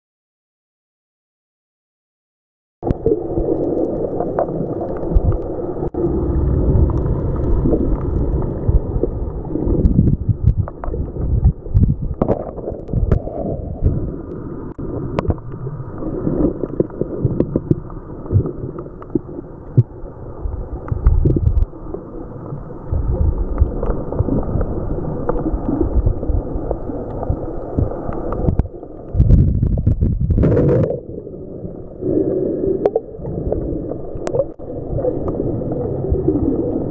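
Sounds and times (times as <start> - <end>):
muffled underwater wave rushing: 2.8 - 36.9.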